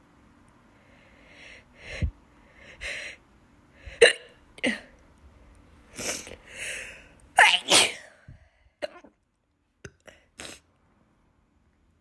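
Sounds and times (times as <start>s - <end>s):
breathy intakes: 6.1s - 7.2s
woman sneezing: 7.4s - 8.2s.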